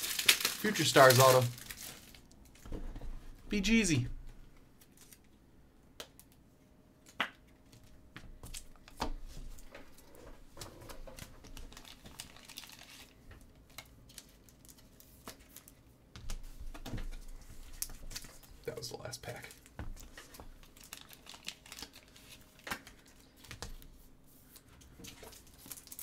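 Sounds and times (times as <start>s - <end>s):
cards and wrappers rustling: 0.0s - 2.6s, 4.8s - 5.3s, 7.7s - 16.4s, 17.0s - 26.0s.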